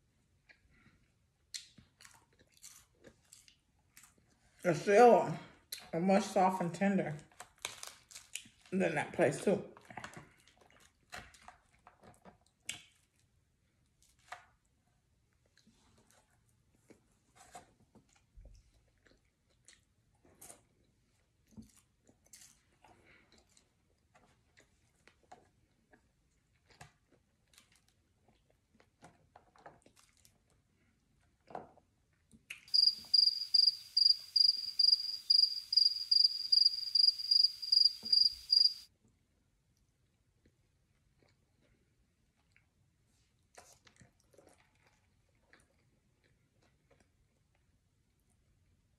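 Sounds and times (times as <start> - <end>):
person chewing food: 1.5 - 4.4, 18.0 - 20.8, 41.1 - 41.8
cricket chirping sound effect: 32.7 - 38.8.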